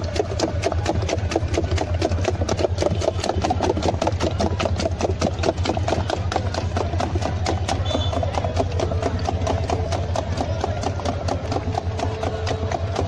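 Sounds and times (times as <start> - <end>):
rapid uneven clatter: 0.0 - 13.0
small engine idling: 0.0 - 13.0.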